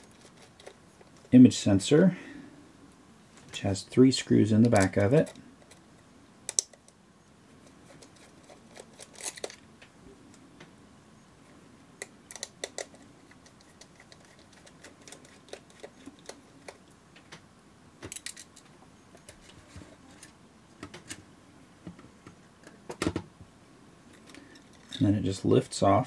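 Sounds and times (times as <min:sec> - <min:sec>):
tiny screws and screwdriver clicking: 0:07.9 - 0:09.6, 0:12.0 - 0:16.9.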